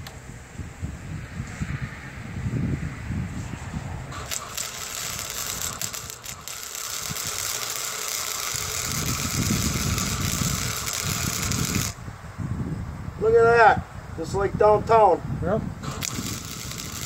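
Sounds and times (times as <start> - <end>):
arc welding crackling sizzle: 4.1 - 12.0, 15.8 - 17.0.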